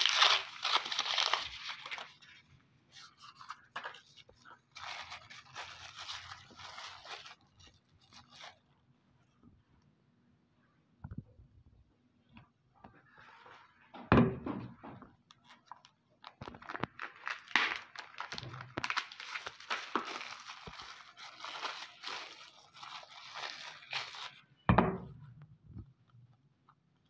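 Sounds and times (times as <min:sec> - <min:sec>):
wrapper crinkling: 0:00.0 - 0:08.8, 0:15.4 - 0:24.5
thud: 0:13.9 - 0:15.1.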